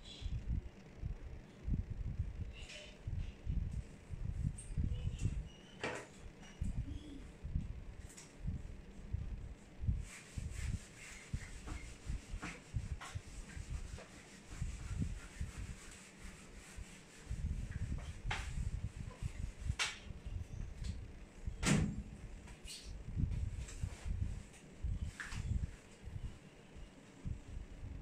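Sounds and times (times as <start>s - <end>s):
eraser rubbing whiteboard: 10.0s - 20.0s.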